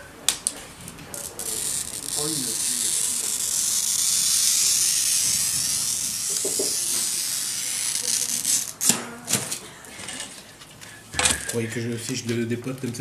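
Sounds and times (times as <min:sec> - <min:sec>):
glass cutter scoring glass: 0:01.3 - 0:09.0.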